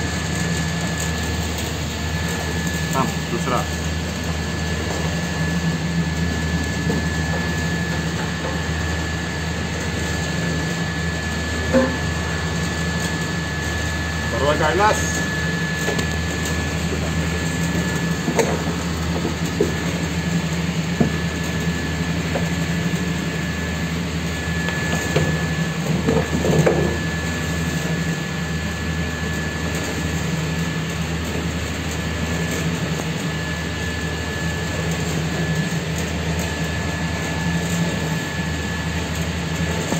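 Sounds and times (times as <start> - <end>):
thin high whine: 0.0 - 30.9
machine running with low hum: 0.0 - 39.9.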